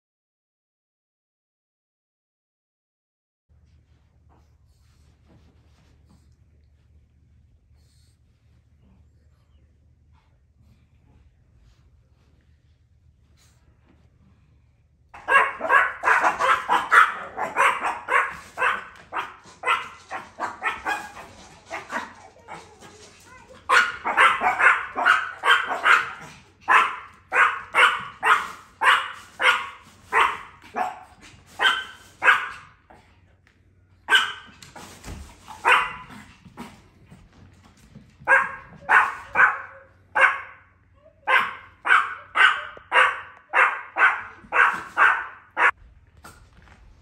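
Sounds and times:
small dogs barking in high yaps: 15.2s - 22.6s, 23.3s - 32.7s, 34.1s - 34.6s, 35.5s - 36.1s, 38.2s - 40.6s, 41.2s - 45.8s.

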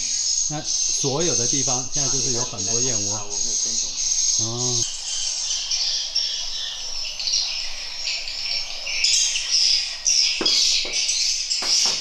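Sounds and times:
birds chirping: 0.0s - 12.0s
insects chirring: 0.0s - 12.0s
soft knocks: 10.4s - 12.0s.

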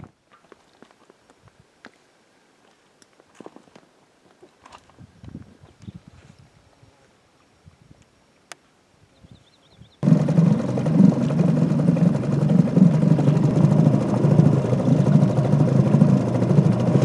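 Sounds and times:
outboard motor running: 10.0s - 17.0s.

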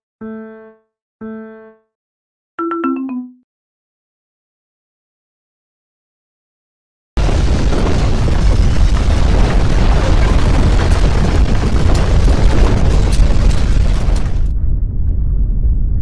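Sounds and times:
crackles: 7.2s - 16.0s
deep rumbling roar: 7.3s - 16.0s.

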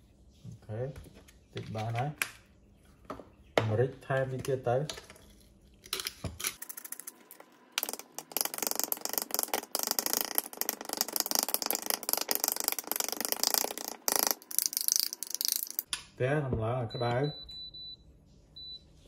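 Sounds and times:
metal spoon beating eggs in bowl: 6.6s - 15.9s.

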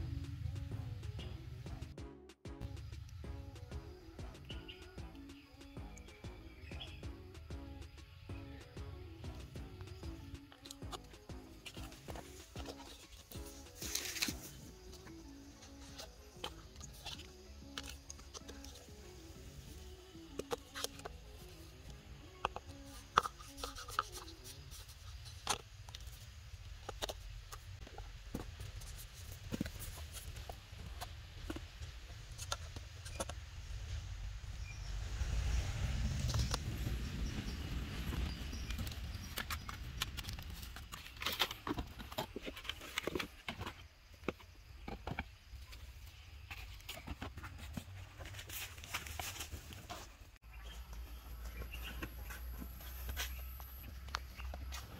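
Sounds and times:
low steady rumble: 0.0s - 2.0s.

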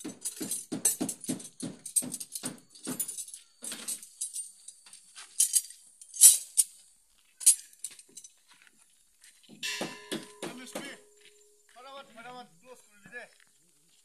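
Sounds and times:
metal parts and tools clinking: 0.0s - 6.8s, 7.4s - 8.4s, 9.6s - 11.3s.

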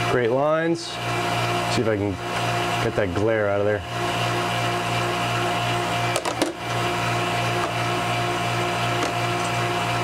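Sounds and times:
motor humming: 0.0s - 10.0s.

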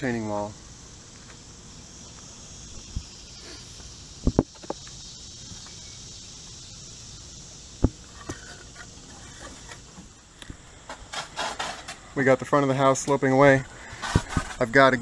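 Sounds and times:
high insect buzz: 0.0s - 15.0s
sharp knocks and thumps: 4.2s - 4.9s.

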